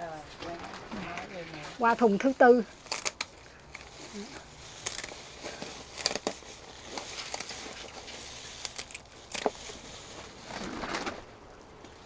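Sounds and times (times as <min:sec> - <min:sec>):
leaves rustling: 0:00.0 - 0:12.0
stems being snipped: 0:02.8 - 0:11.2.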